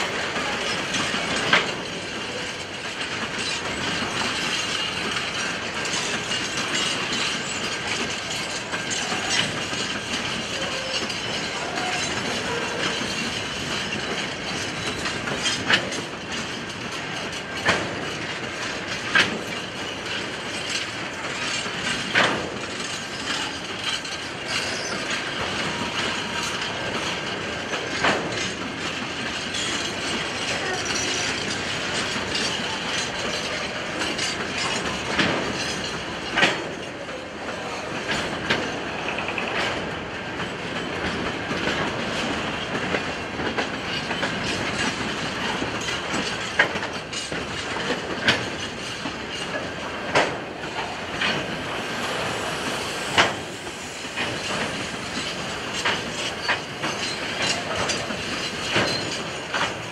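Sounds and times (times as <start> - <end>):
freight train rolling rumble: 0.0 - 59.9.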